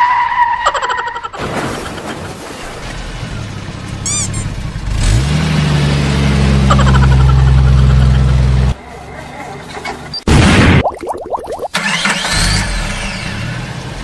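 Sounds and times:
deep vehicle engine: 3.0s - 8.8s.

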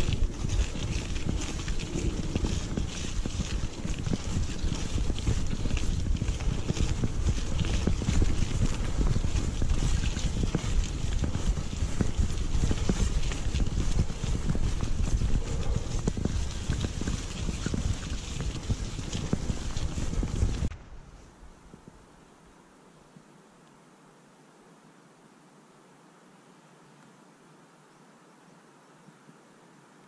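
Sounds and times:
bike knocking and rattling: 0.0s - 20.8s
wind buffeting microphone: 0.0s - 22.0s
continuous rumble: 0.0s - 22.4s.

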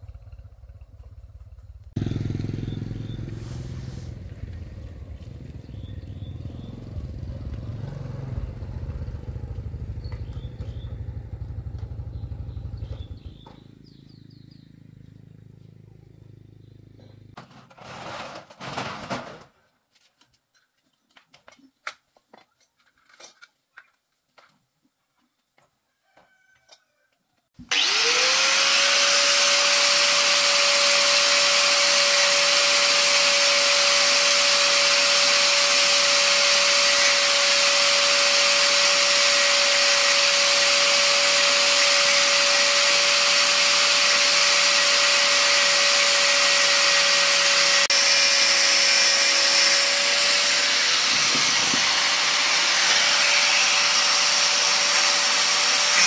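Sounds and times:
angle grinder whining: 2.0s - 6.8s, 27.6s - 56.0s.

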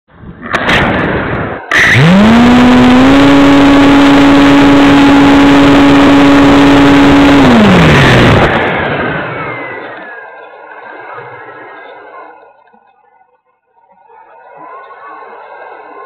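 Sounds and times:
electric motor and propeller: 1.4s - 12.1s.

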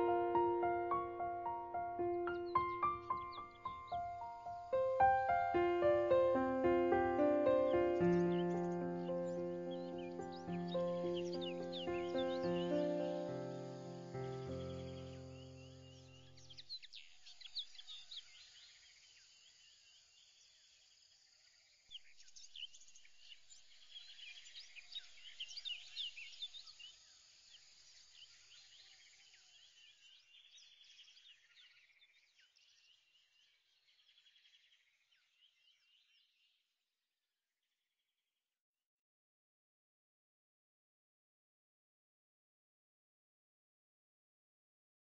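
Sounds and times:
held music chord: 0.0s - 15.6s
faint birdsong chirps and trills: 0.0s - 36.8s.

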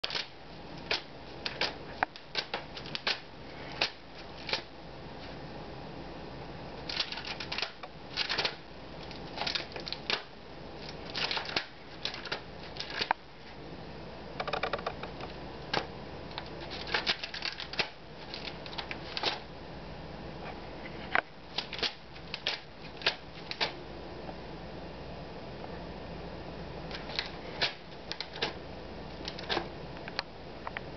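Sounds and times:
papers rustling and sliding: 15.8s - 19.4s, 26.9s - 29.7s.

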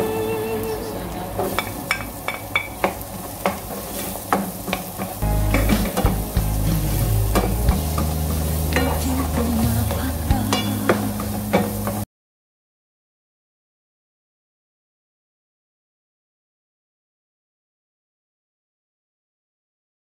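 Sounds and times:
low held music notes: 0.0s - 1.9s, 5.2s - 12.0s
onion and garlic sizzling in oil: 0.0s - 12.0s.

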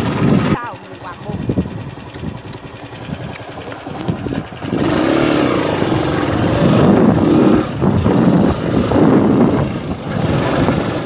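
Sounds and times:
small motorcycle engine running: 0.0s - 11.0s.

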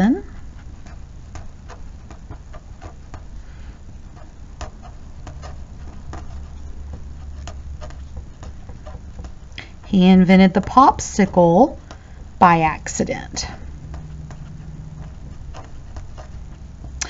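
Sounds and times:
low steady hum: 0.0s - 17.0s
pen writing on paper: 0.3s - 3.4s, 4.1s - 10.0s, 13.4s - 17.0s.

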